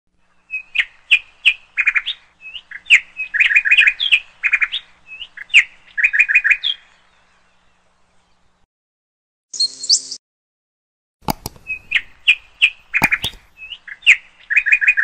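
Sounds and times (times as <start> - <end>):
parakeet chirping: 11.3 - 13.8.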